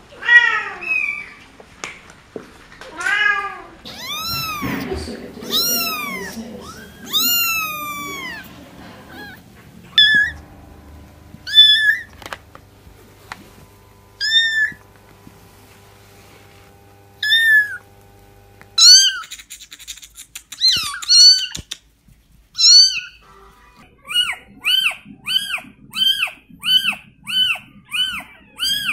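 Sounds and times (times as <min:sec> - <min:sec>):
kittens meowing: 0:02.9 - 0:10.5, 0:11.5 - 0:12.1, 0:14.2 - 0:14.8, 0:17.2 - 0:17.8, 0:18.8 - 0:19.4, 0:20.4 - 0:21.7, 0:22.6 - 0:28.9.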